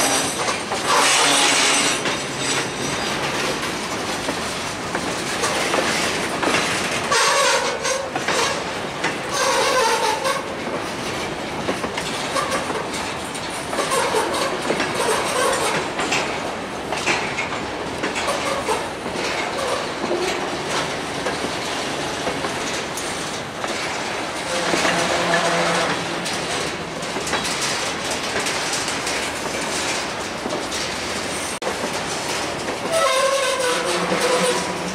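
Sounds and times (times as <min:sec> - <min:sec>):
train wheel squeals: 0:00.0 - 0:03.5, 0:07.0 - 0:10.6, 0:12.3 - 0:12.8, 0:13.7 - 0:15.8, 0:19.5 - 0:20.5, 0:24.4 - 0:26.2, 0:32.8 - 0:34.9
train wheels clacking over rail joints: 0:00.0 - 0:34.9.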